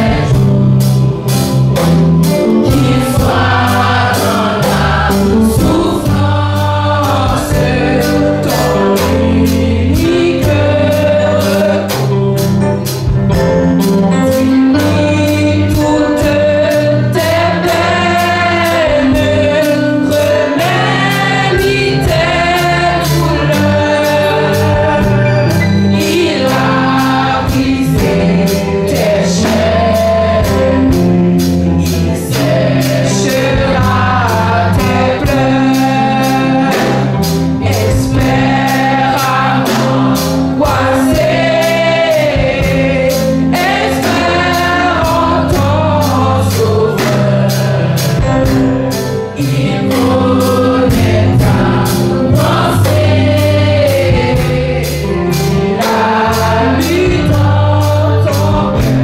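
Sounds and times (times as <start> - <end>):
women singing together: 0.0 - 0.6, 2.6 - 12.0, 14.9 - 48.4, 49.4 - 59.0
bass guitar: 0.0 - 59.0
drum kit beat: 0.0 - 59.0.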